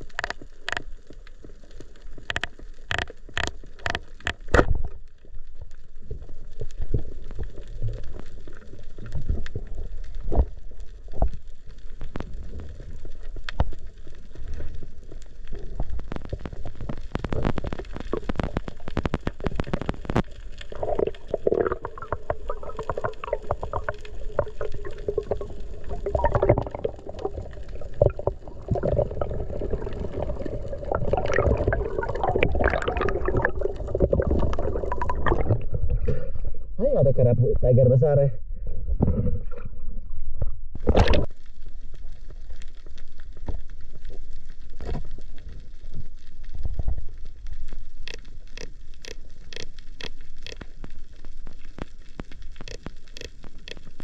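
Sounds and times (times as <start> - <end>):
underwater low rumble: 0.0 - 54.0
sharp clicks and knocks: 2.2 - 4.9, 52.6 - 54.0.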